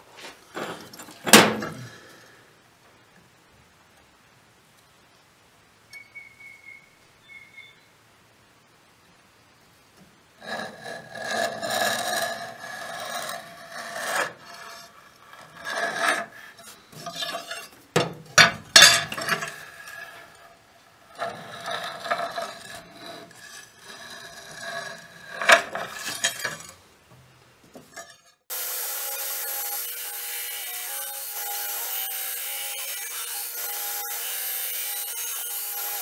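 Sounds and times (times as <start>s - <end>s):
scribe scraping on steel: 10.4s - 26.8s, 27.8s - 36.0s
belt grinder running: 28.5s - 36.0s.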